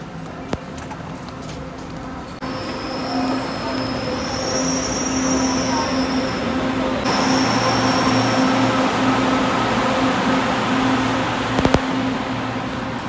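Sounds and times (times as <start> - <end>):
faint train wheel squeal: 2.2 - 9.6
escalator rumble and hum: 5.7 - 13.0.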